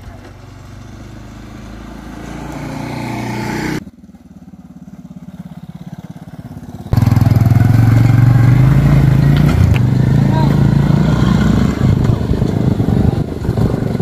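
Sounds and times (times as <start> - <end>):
loud motorcycle engine running: 0.0 - 14.0
motorcycle running at low revs: 0.0 - 14.0
scooter engine approaching: 0.0 - 14.0.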